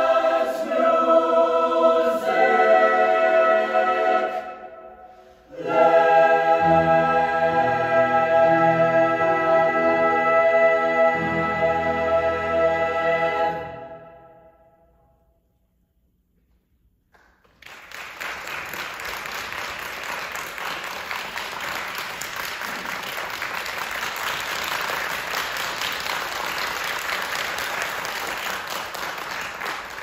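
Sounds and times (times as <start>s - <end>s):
audience applauding: 17.2s - 30.0s.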